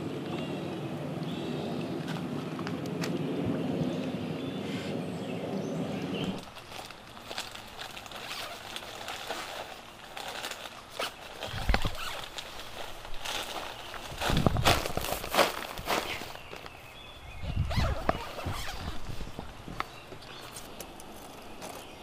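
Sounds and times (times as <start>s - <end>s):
rustles and clicks: 6.1s - 22.0s
footsteps on leaf litter: 6.4s - 22.0s.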